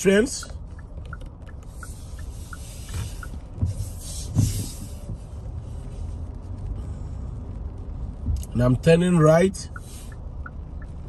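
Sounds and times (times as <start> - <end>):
car engine and road rumble: 0.0 - 11.0
turn signal ticking: 0.0 - 11.0
tyre hiss on wet road: 1.7 - 8.0, 9.2 - 10.2
dull thumps: 2.9 - 5.3.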